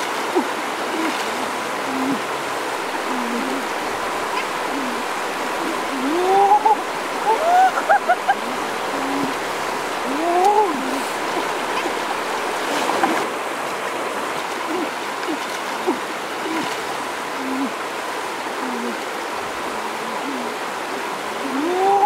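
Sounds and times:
stream running over rocks: 0.0s - 22.0s
brief voice-like sounds: 10.0s - 11.4s.

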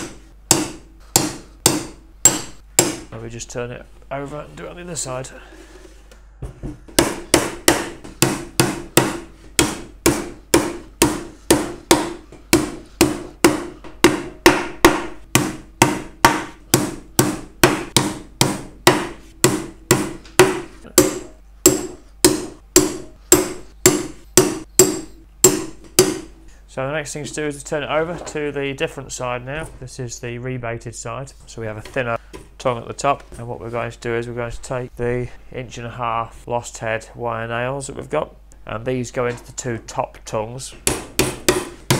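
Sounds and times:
hammer driving nails into wood: 7.0s - 26.3s, 40.8s - 41.9s.

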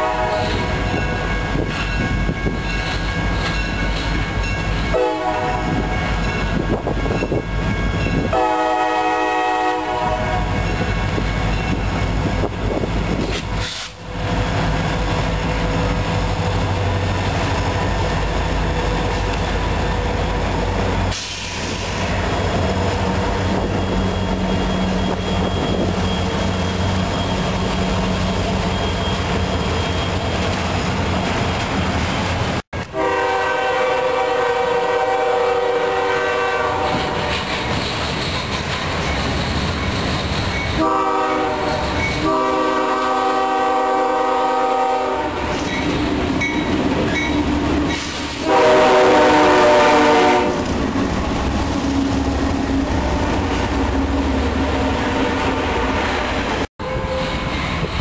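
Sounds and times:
locomotive air horn: 0.0s - 0.8s, 4.9s - 6.1s, 8.3s - 10.8s, 32.8s - 37.5s, 40.8s - 45.7s, 48.4s - 50.7s, 56.8s - 57.5s
locomotive engines rumbling: 0.0s - 58.0s
wheels clattering on rails: 0.4s - 5.0s, 5.7s - 8.4s, 10.6s - 15.6s, 36.8s - 40.9s.

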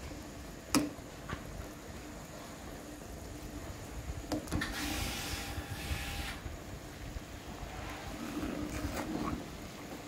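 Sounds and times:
soup bubbling at a boil: 0.0s - 5.2s
faint steady hum: 0.0s - 10.0s
hiss: 3.5s - 10.0s.

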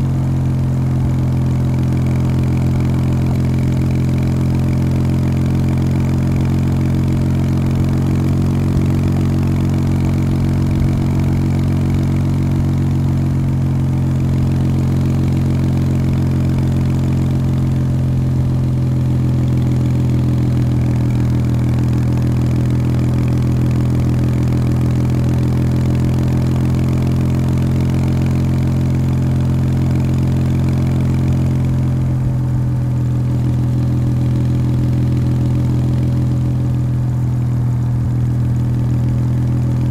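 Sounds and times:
motorcycle engine pulling steadily: 0.0s - 39.9s.

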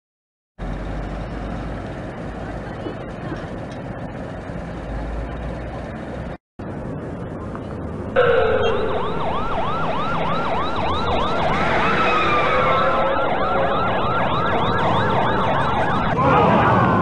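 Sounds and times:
ambulance siren yelping: 8.2s - 17.0s.

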